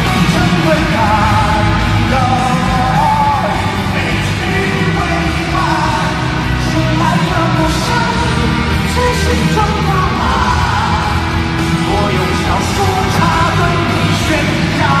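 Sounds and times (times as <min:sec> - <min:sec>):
live band music: 0:00.0 - 0:15.0
man singing: 0:00.0 - 0:15.0.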